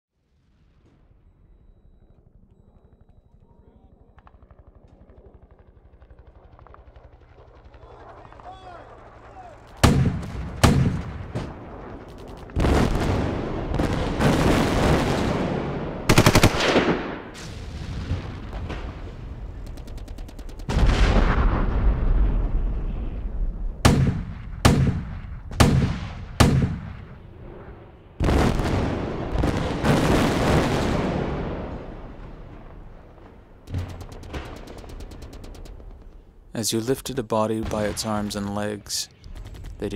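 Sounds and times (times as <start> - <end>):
echoing gunshots: 6.3 - 39.9
deep heavy blast: 9.8 - 19.6, 20.7 - 34.7.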